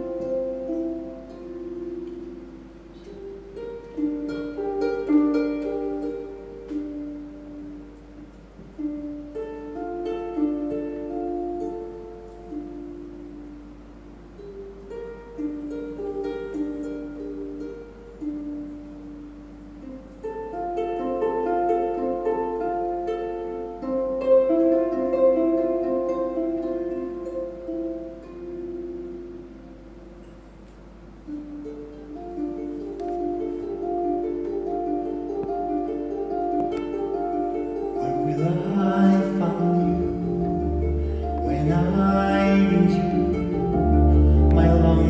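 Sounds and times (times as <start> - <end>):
harp plucked notes: 0.0 - 45.0
man singing: 38.0 - 40.5, 41.4 - 43.8, 44.4 - 45.0
low double bass note: 39.6 - 45.0.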